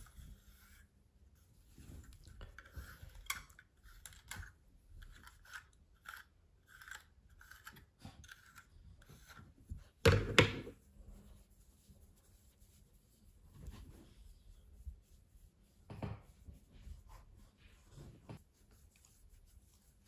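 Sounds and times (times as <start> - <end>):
brush scratching through fur: 10.7 - 20.0.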